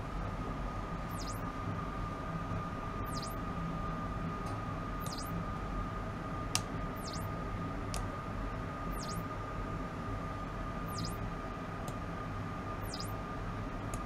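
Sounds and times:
electrical hum and hiss: 0.0s - 14.0s
thin steady whine: 0.7s - 4.2s, 4.8s - 6.2s, 6.8s - 7.8s, 8.6s - 11.7s, 12.5s - 14.0s
faint high chirp: 1.1s - 1.4s, 3.0s - 3.4s, 5.0s - 5.4s, 7.0s - 7.3s, 8.9s - 9.3s, 10.9s - 11.2s, 12.8s - 13.2s
sharp click: 5.0s - 5.3s.

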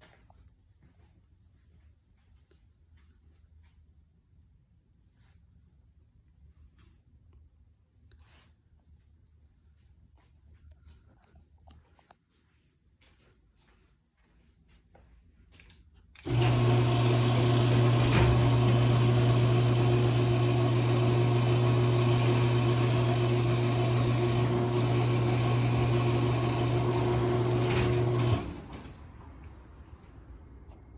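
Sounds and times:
garage door opener motor hum: 16.2s - 29.1s.

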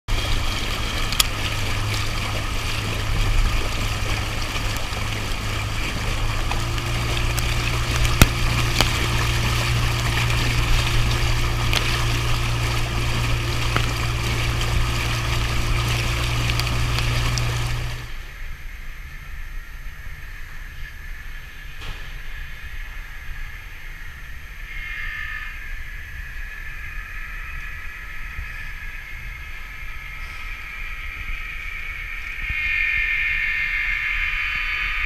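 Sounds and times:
motorboat engine running: 0.0s - 18.4s
water splashing against hull: 0.1s - 18.5s.

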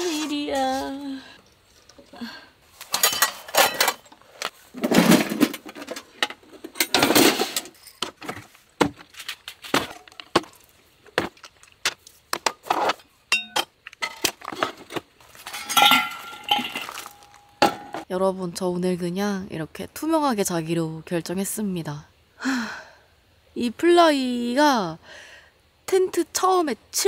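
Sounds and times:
dishes and utensils clinking: 2.9s - 4.1s, 13.3s - 14.7s, 15.4s - 18.1s
dishes clattering: 2.9s - 4.1s, 13.3s - 18.1s.

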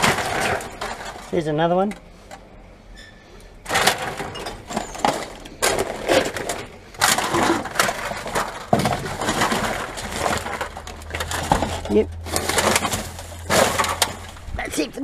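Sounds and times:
rattles and knocks in bin: 0.0s - 1.6s, 3.6s - 14.9s
plastic rubbish crinkling: 0.0s - 2.0s, 3.6s - 15.0s.

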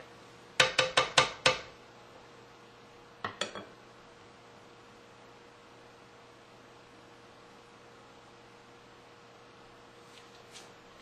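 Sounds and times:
faint steady hum: 0.0s - 11.0s
wooden spoon knocking on pan: 0.6s - 1.7s.

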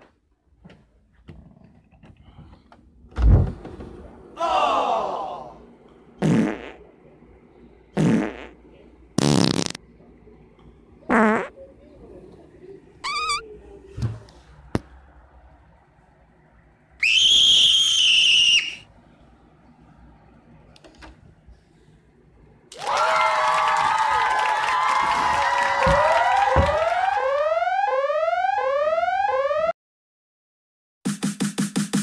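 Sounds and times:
fart noises: 6.2s - 6.8s, 8.0s - 8.6s, 9.2s - 9.8s, 11.1s - 11.6s.

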